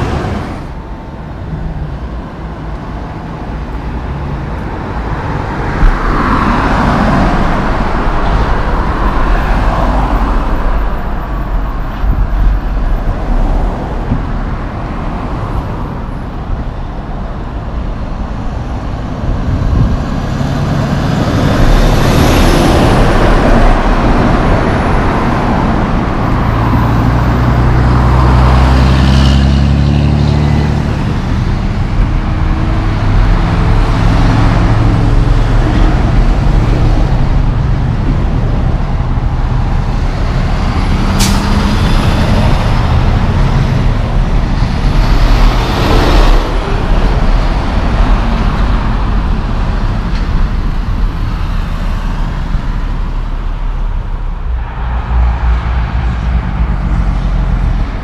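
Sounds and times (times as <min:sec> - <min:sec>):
truck engine drone: 0:00.0 - 0:58.0
trucks passing on highway: 0:00.0 - 0:58.0
tyre and traffic noise: 0:00.0 - 0:58.0.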